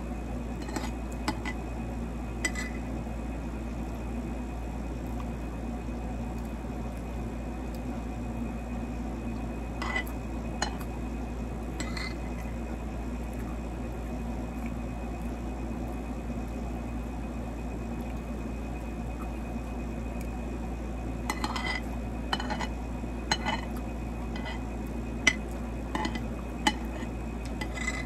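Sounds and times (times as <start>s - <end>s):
low background hum: 0.0s - 28.0s
cutlery clinking on a plate: 21.3s - 22.7s, 23.3s - 23.7s.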